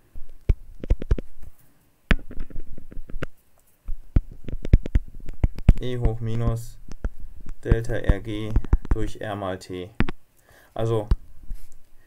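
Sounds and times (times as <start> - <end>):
stylus tapping on pen tablet: 0.3 - 1.3, 2.1 - 9.2, 10.0 - 10.2.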